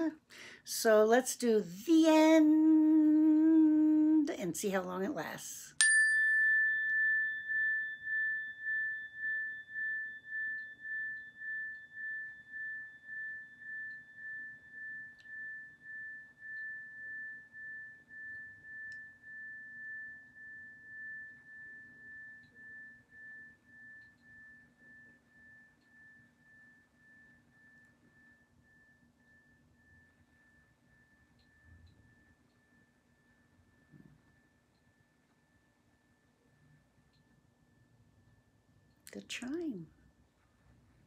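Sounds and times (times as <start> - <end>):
metal tone bar chime ringing: 5.7 - 34.0.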